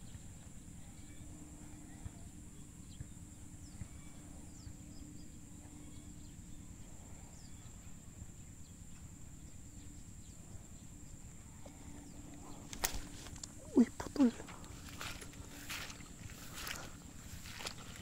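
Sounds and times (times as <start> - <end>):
high-pitched insect drone: 11.2 - 18.0.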